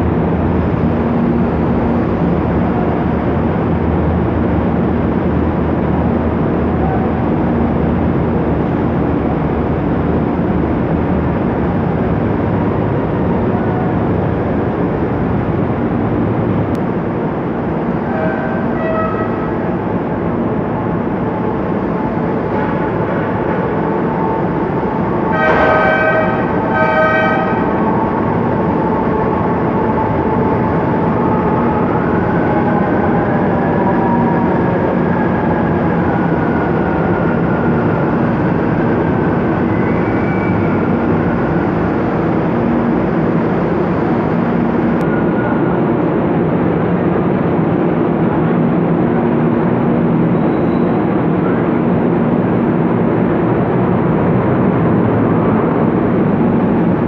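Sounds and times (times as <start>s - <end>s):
train wheels rumbling on rails: 0.0s - 57.0s
train horn toots: 18.1s - 19.6s, 25.2s - 28.0s.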